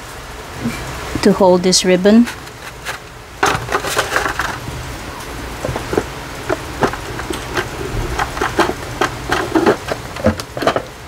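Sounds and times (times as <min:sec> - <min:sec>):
plastic packaging crackling: 0:02.2 - 0:11.0.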